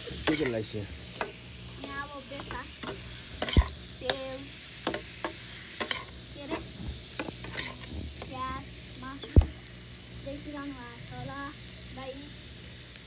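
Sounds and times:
metal spatula scraping a wok: 0.0 - 4.2, 4.8 - 8.3
meat sizzling: 0.0 - 13.0.

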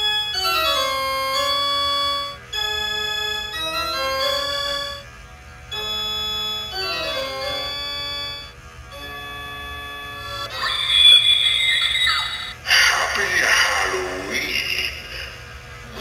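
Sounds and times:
organ music: 0.0 - 12.7.

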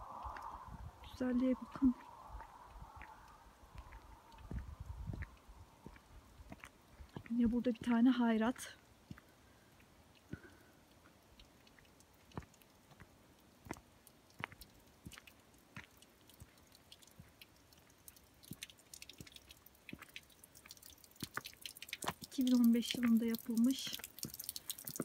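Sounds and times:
footsteps on gravel: 1.9 - 8.0.

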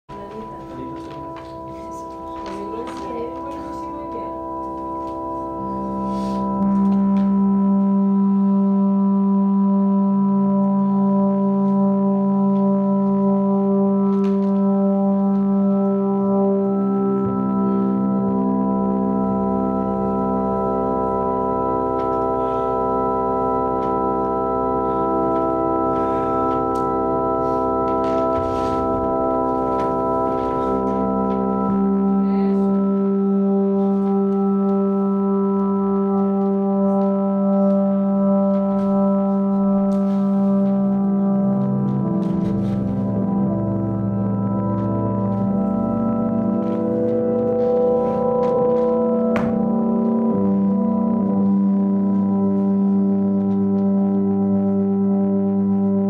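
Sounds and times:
drone music held chords: 0.1 - 56.0.

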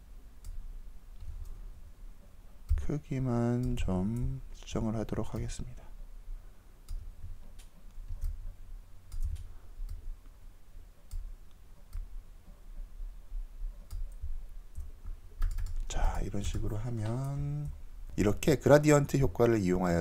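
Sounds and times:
computer mouse clicking: 6.8 - 10.1, 11.0 - 12.6, 13.7 - 15.9.

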